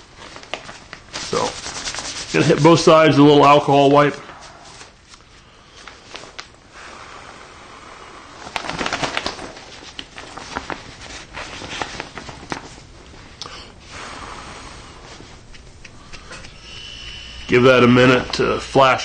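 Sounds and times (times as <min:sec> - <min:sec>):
fabric rustling and crinkling: 0:00.0 - 0:02.9, 0:04.3 - 0:06.6, 0:08.4 - 0:13.4.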